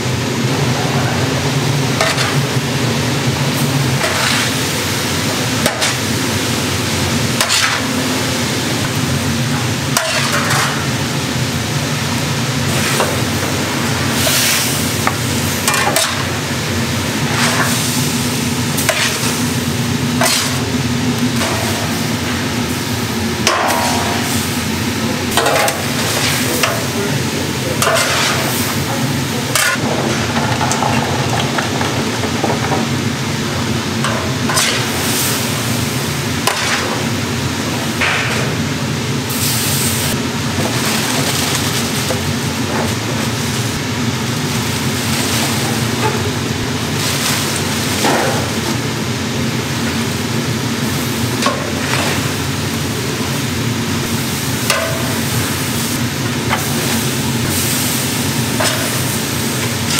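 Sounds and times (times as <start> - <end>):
steady machine hum: 0.0 - 59.9
utensils scraping and knocking on pans: 2.0 - 2.6, 4.0 - 4.6, 5.6 - 6.2, 7.4 - 7.9, 9.9 - 10.9, 14.2 - 16.4, 17.2 - 17.8, 18.8 - 19.4, 20.2 - 20.7, 25.3 - 27.1, 27.8 - 33.0, 34.0 - 35.1, 36.4 - 37.1.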